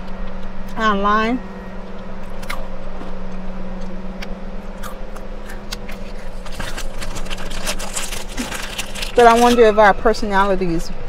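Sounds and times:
steady low hum: 0.0s - 11.0s
crunchy chewing: 1.8s - 9.6s
plastic snack packet crinkling: 6.0s - 9.8s.

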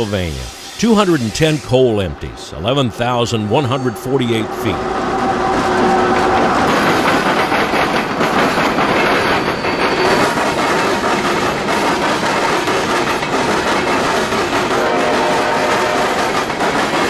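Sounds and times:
train wheels clattering over rails: 5.0s - 17.0s.

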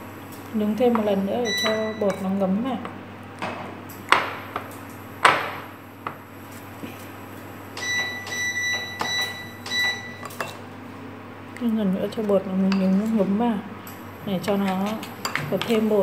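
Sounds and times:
high steady tone: 1.1s - 2.2s.

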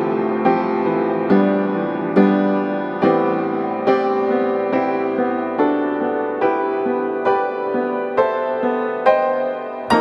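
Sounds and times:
keyboard chords ringing: 3.0s - 10.0s.

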